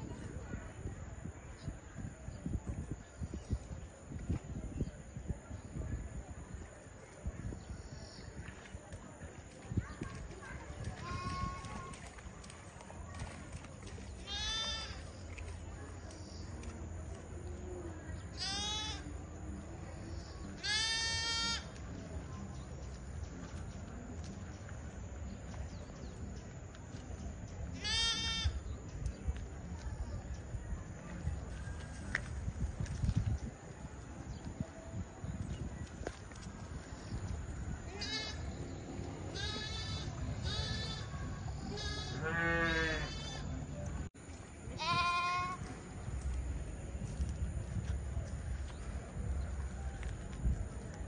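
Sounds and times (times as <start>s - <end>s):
lamb bleating: 14.3s - 14.9s, 18.4s - 19.0s, 20.6s - 21.6s, 41.8s - 43.4s.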